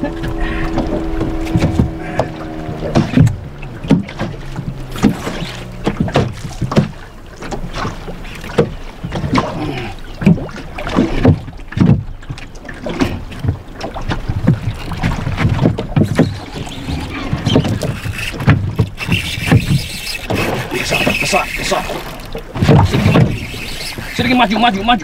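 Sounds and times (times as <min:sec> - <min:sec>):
water slapping boat hull: 0:00.0 - 0:25.0.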